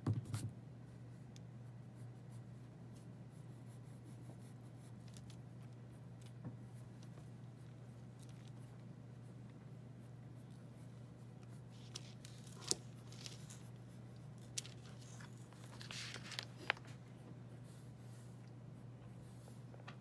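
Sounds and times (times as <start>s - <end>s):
steady low hum: 0.0s - 20.0s
pencil scratching on paper: 1.6s - 16.0s.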